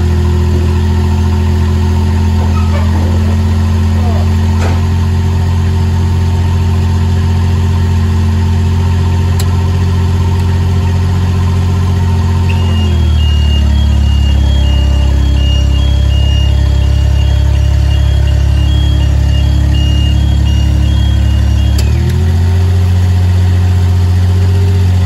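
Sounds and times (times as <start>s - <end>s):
scissor lift engine humming: 0.0s - 25.0s
high repeating beeping alarm: 12.3s - 22.1s.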